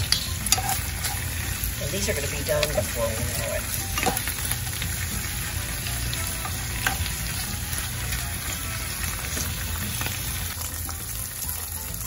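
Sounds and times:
spatula scraping pan: 0.0s - 4.5s
greens sizzling in hot oil: 0.0s - 12.0s.

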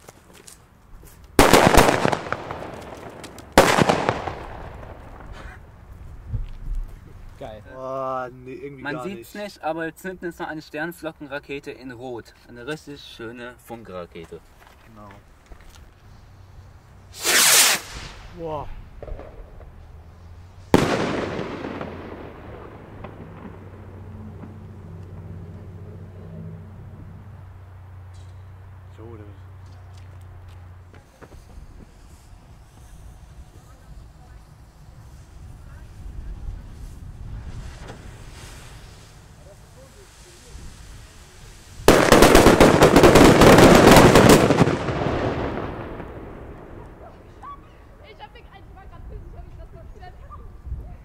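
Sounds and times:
firework bang: 1.4s - 6.5s, 17.1s - 19.8s, 20.7s - 24.8s, 30.9s - 47.6s
rumbling echo: 20.8s - 24.8s.

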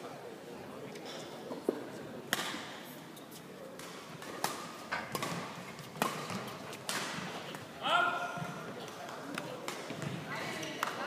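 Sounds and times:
racket hitting shuttlecock: 2.3s - 2.7s, 3.8s - 7.6s.

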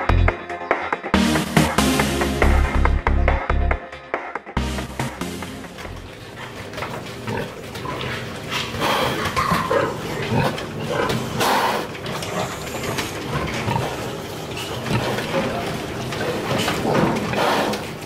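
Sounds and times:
piglets grunting and squealing: 6.3s - 18.0s.

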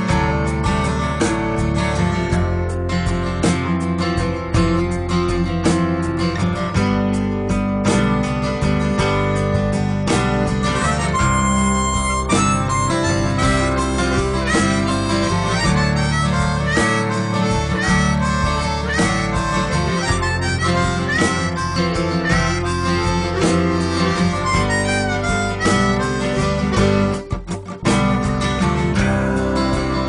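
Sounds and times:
steady bass line: 0.0s - 30.0s
melody with pitch bends: 10.8s - 26.6s.

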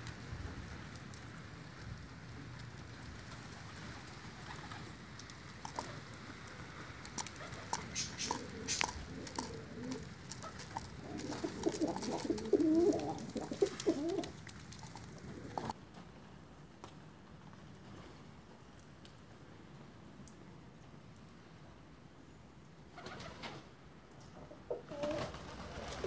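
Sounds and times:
pigeons cooing: 5.6s - 15.7s, 24.4s - 26.0s.

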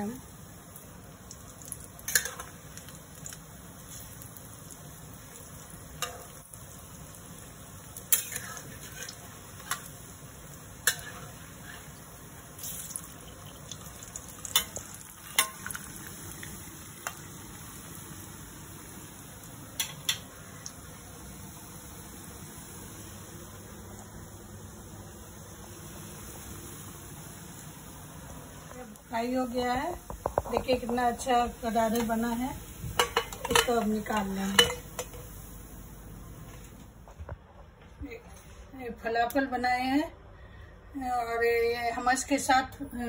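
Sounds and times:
food deep-frying in hot oil: 0.0s - 36.4s
metal spatula clinking on pan: 15.4s - 15.7s, 33.0s - 35.2s.

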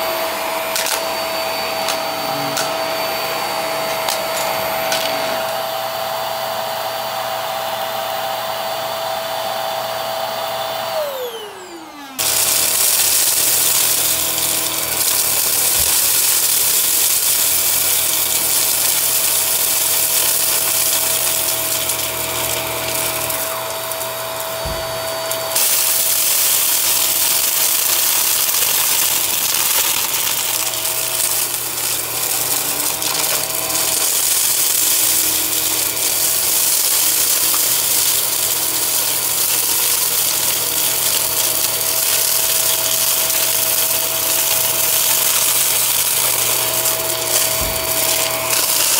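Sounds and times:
vacuum motor whine: 0.0s - 48.9s
debris crackling in vacuum: 11.0s - 48.9s.

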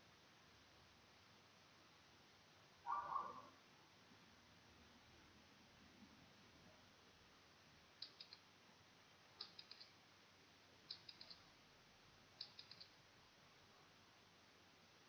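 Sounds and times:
faint timer ticking clicks: 8.0s - 8.5s, 9.4s - 10.0s, 10.8s - 11.5s, 12.4s - 13.0s.

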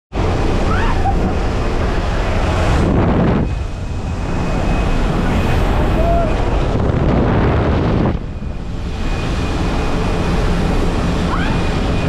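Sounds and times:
air rushing buffeting microphone: 0.1s - 12.0s
aircraft engine drone: 0.1s - 12.0s.

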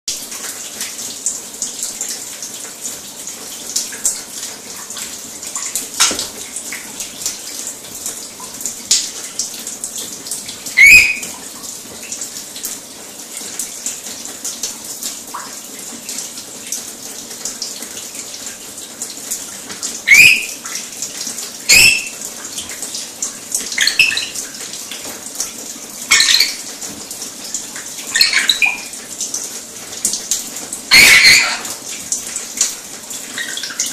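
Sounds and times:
parrot screeching: 10.8s - 11.3s, 20.1s - 20.6s, 21.7s - 22.2s, 23.8s - 24.4s, 26.1s - 26.6s, 28.1s - 28.9s, 30.9s - 31.8s.

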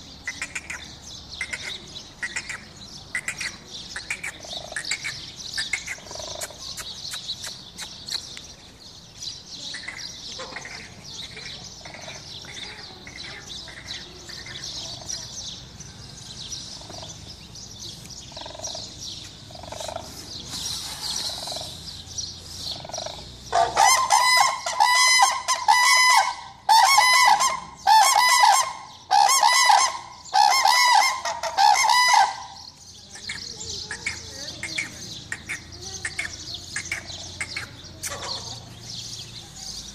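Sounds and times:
cranes calling: 18.3s - 38.6s
cranes trumpeting calls: 22.6s - 32.7s.

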